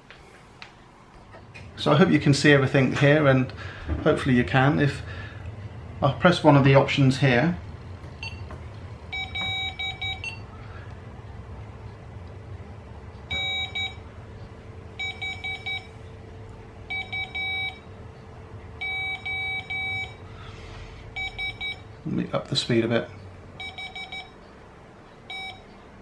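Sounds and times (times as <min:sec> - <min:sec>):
morse code beeps: 0:08.2 - 0:08.5, 0:09.1 - 0:10.5, 0:13.3 - 0:14.0, 0:15.0 - 0:15.9, 0:16.9 - 0:17.8, 0:18.8 - 0:20.2, 0:21.2 - 0:21.8, 0:23.6 - 0:24.4, 0:25.3 - 0:25.7.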